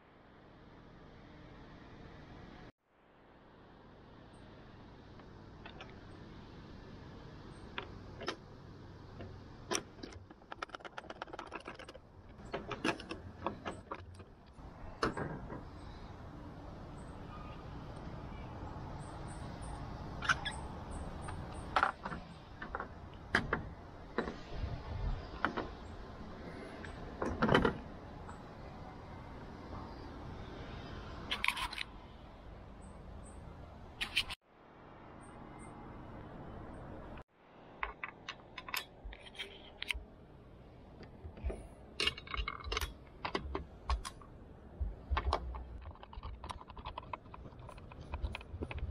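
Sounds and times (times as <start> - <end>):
plastic parts clicking and knocking: 9.2 - 15.9, 26.8 - 28.4, 37.8 - 40.0, 41.0 - 48.9.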